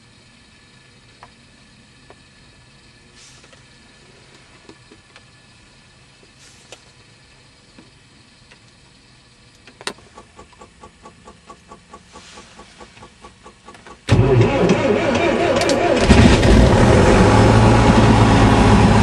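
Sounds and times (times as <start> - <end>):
aircraft engine cranking: 9.8 - 19.0.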